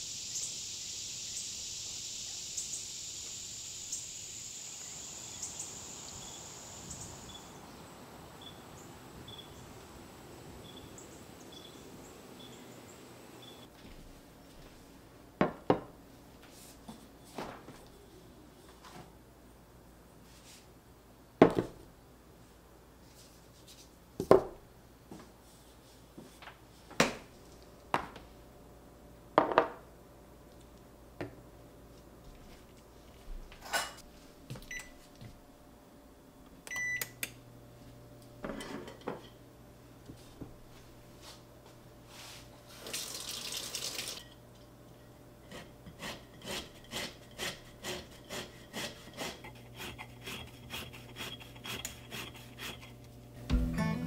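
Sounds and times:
running water: 42.8s - 44.3s.

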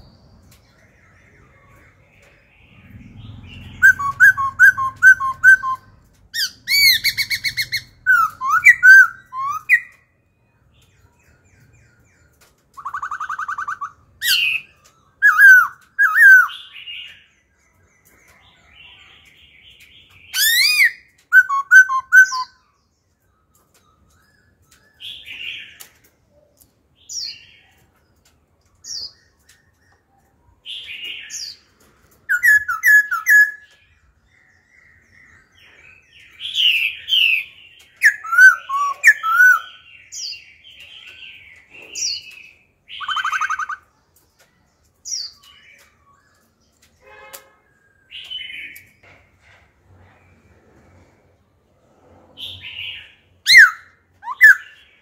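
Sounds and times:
bird singing whistled trills: 0.0s - 10.2s, 10.9s - 19.0s, 20.2s - 25.8s, 32.3s - 43.9s, 52.5s - 55.0s.

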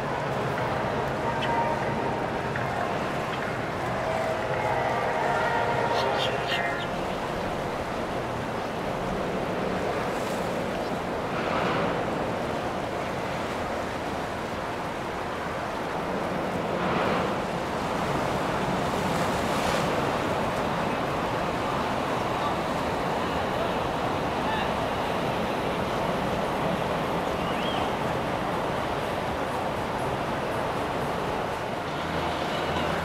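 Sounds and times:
rushing water: 0.0s - 33.0s.

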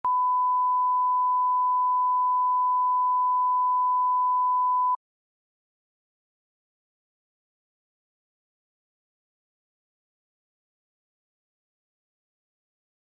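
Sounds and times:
steady test tone beep: 0.0s - 5.0s.

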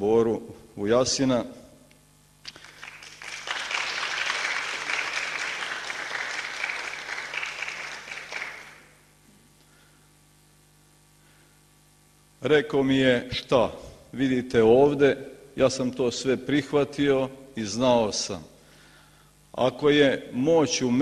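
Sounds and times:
audience applauding: 2.5s - 8.9s.

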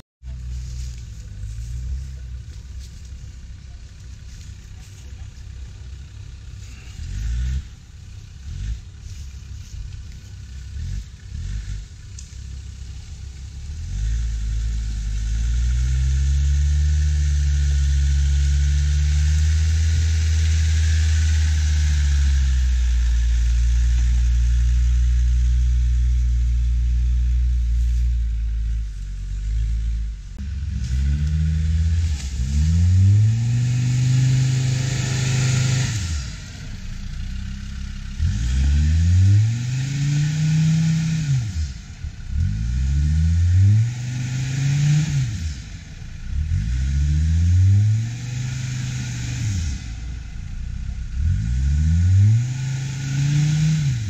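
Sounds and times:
engine revving hard: 6.6s - 7.8s, 10.7s - 12.0s, 13.6s - 28.0s, 29.4s - 50.2s, 51.0s - 54.0s.

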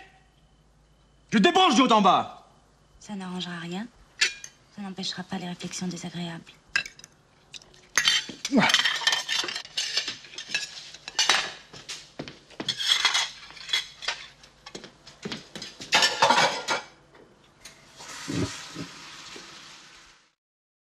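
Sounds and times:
dishes and cutlery clinking: 4.2s - 4.6s, 6.8s - 12.0s, 12.6s - 14.8s, 15.6s - 17.0s.

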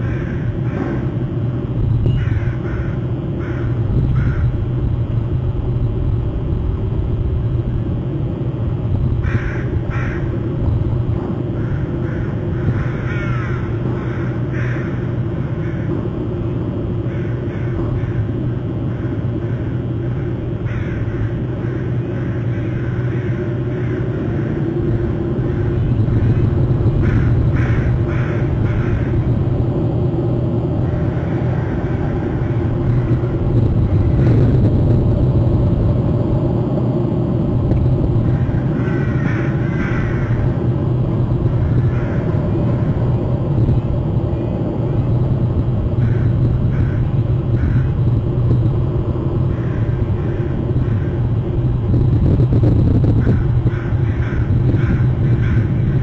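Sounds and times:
crow cawing: 0.0s - 1.2s, 2.1s - 4.5s, 9.2s - 10.4s, 11.4s - 16.0s, 17.0s - 29.3s, 38.2s - 40.6s, 41.6s - 42.4s, 46.0s - 48.0s, 49.5s - 51.2s, 53.2s - 56.0s
steady low rumble: 0.0s - 56.0s.

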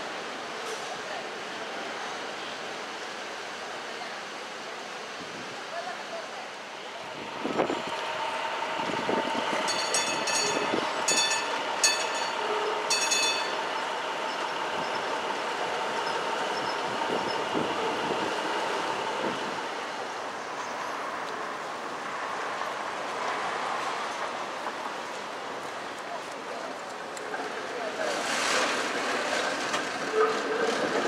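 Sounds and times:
streetcars rolling on rails: 0.0s - 31.0s
sharp metallic clanks: 9.7s - 13.6s
wheels squealing on curved track: 28.0s - 31.0s.

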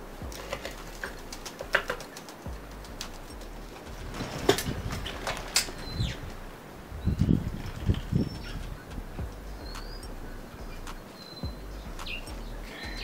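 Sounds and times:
bird calling: 7.0s - 13.0s.

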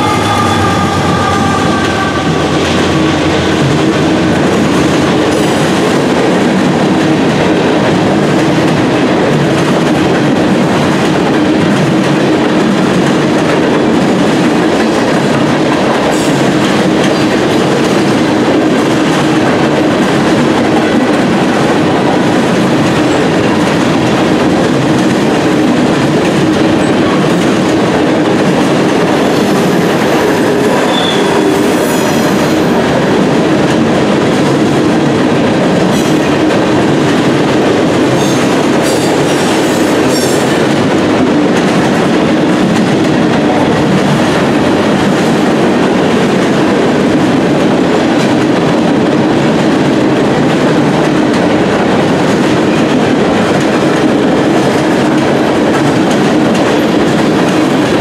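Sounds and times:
train horn chord: 0.0s - 4.5s
freight train wheels clattering: 0.0s - 58.0s.

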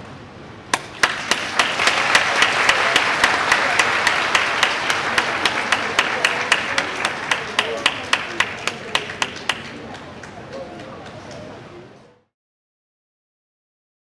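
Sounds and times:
sharp hand claps close by: 0.7s - 11.4s
audience applauding: 0.8s - 11.3s.

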